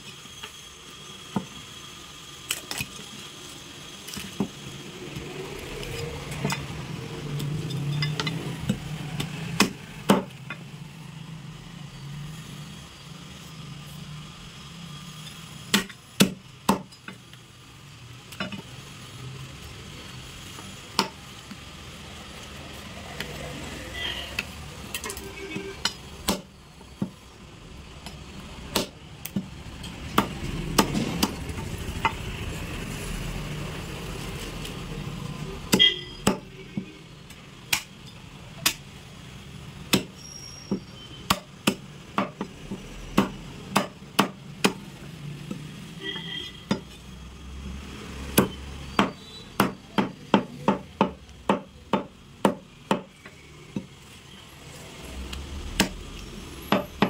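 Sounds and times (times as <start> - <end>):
cleaver chopping bone: 8.7 - 10.3, 15.7 - 16.9, 26.2 - 27.2, 28.7 - 29.5, 30.1 - 31.4, 37.7 - 37.9, 39.9 - 44.8, 48.3 - 53.1, 55.6 - 56.0.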